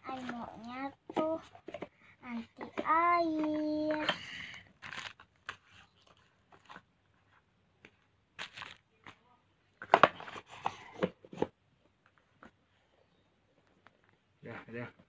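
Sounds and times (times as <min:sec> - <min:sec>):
cardboard packaging rustling: 0:04.8 - 0:07.4, 0:08.4 - 0:09.1.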